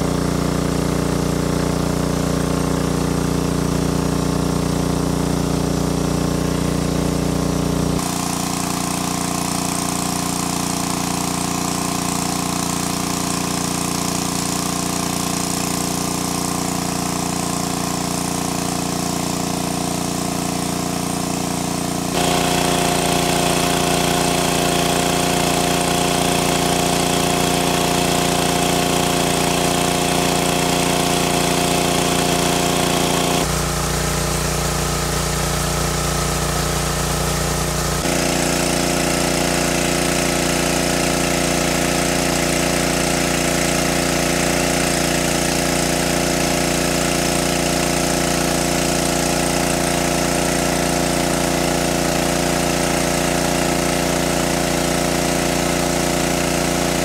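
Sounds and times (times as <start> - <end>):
engine-driven water pump droning: 0.0 - 57.0.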